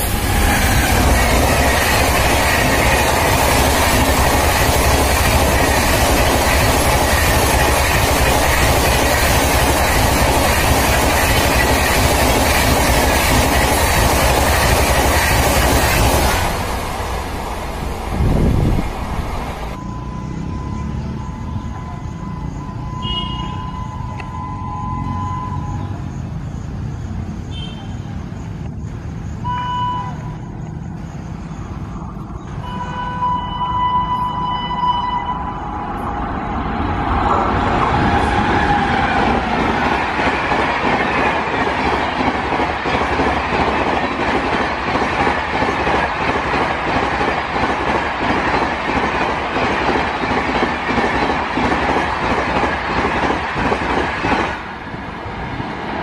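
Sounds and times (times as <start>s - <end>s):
wheels clattering over rails: 0.0s - 19.8s
train coaches rushing past: 0.0s - 56.0s
locomotive horn: 21.6s - 25.8s, 32.6s - 35.6s.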